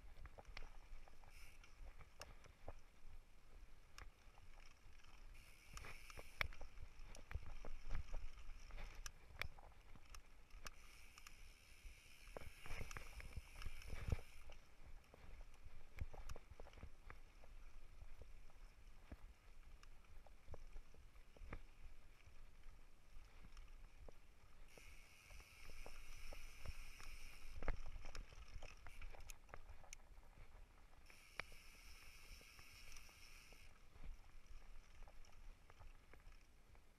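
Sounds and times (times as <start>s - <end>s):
bike tyres rolling on dirt: 0.0s - 36.9s.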